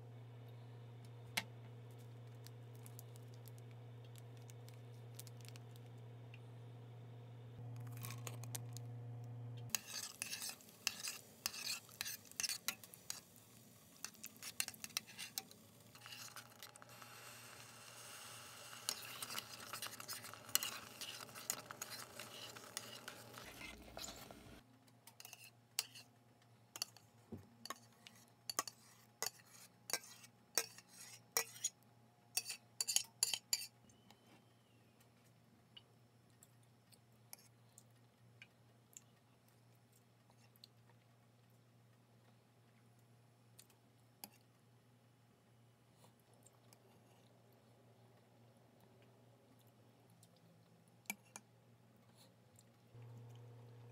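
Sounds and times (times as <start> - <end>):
spoon stirring and scraping pot: 1.9 - 6.0, 9.7 - 33.8, 44.2 - 44.5, 51.1 - 51.5.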